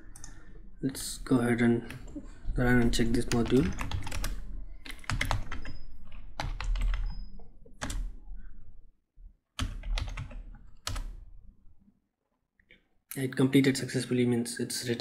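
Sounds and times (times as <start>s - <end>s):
keyboard typing: 1.8s - 8.2s, 9.6s - 11.2s.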